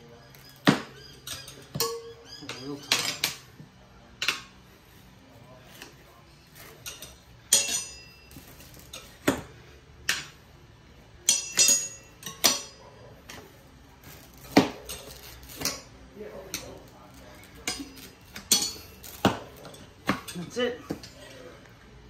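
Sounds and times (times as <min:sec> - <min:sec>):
metal tyre bars clanking on rim: 0:00.6 - 0:03.5, 0:06.6 - 0:09.4, 0:11.2 - 0:12.9, 0:17.6 - 0:21.2.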